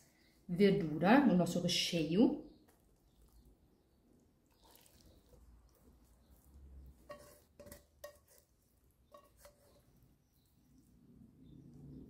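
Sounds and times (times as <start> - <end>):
spoon clinking on metal pan: 7.0 - 8.4, 9.1 - 9.8.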